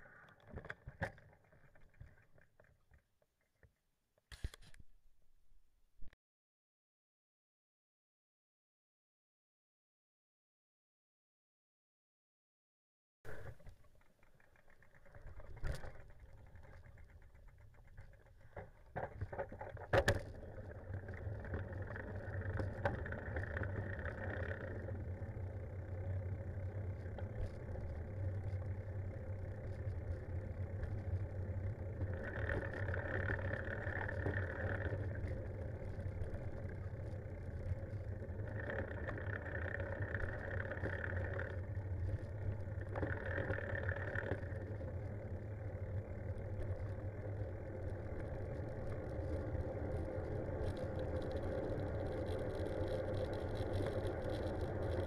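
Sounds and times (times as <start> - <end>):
bicycle tyre and wind rumble: 13.3 - 55.0.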